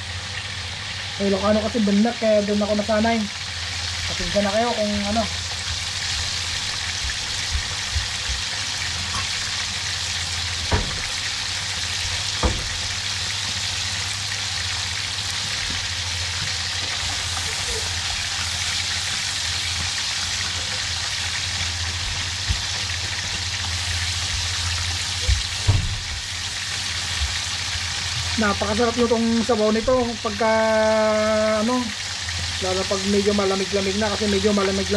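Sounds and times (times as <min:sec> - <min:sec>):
fish sizzling in hot oil: 0:00.0 - 0:34.9.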